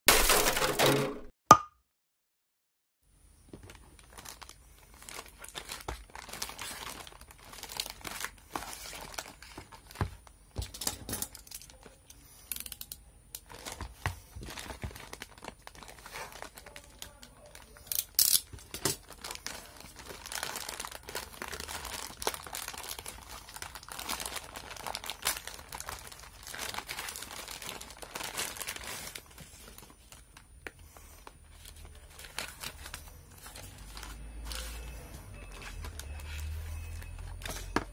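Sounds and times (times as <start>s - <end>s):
plastic tearing: 3.6s - 10.1s, 12.6s - 30.4s
plastic bag crinkling: 3.6s - 12.0s, 13.4s - 37.9s.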